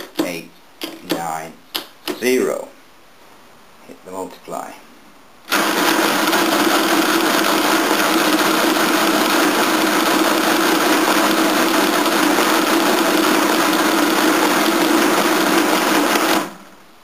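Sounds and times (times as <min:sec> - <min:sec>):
mechanical calculator motor running: 0:05.5 - 0:16.8.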